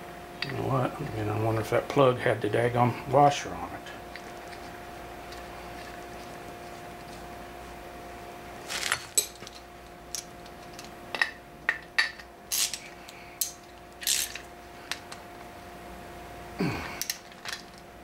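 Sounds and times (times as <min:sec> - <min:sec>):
low electrical hum: 0:00.0 - 0:18.0
metal tools clinking: 0:08.7 - 0:09.6.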